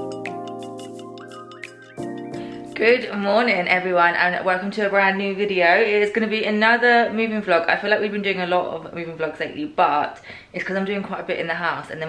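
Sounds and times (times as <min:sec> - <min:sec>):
sustained music chords: 0:00.0 - 0:02.9.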